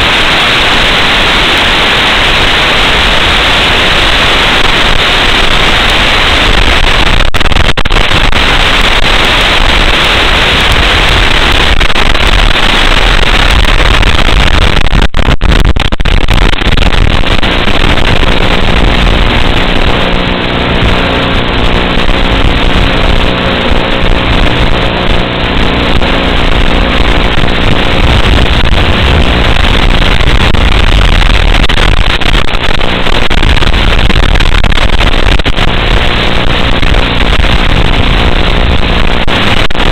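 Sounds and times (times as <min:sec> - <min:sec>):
loud static hiss: 0:00.0 - 0:39.9.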